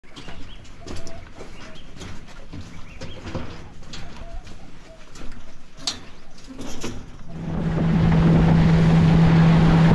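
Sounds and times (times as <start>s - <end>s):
footsteps on steel mesh: 0.0s - 7.2s
birds calling: 0.0s - 7.4s.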